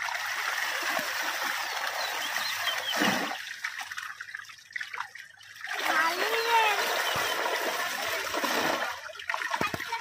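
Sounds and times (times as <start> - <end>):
water dripping: 0.0 - 10.0
fish splashing in water: 0.7 - 4.0.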